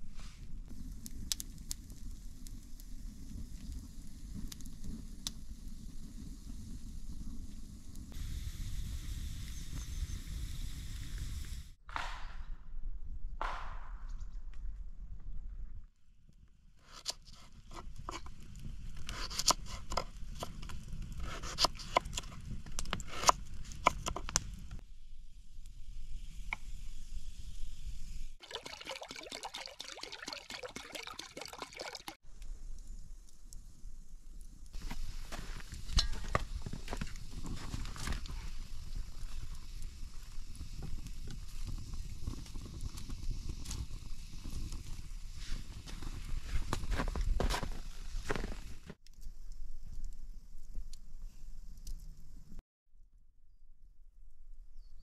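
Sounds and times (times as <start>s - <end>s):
faint steady hiss: 0.0s - 11.7s
campfire crackling: 0.0s - 11.8s, 16.2s - 52.6s
fire popping: 0.0s - 12.6s, 13.4s - 52.6s.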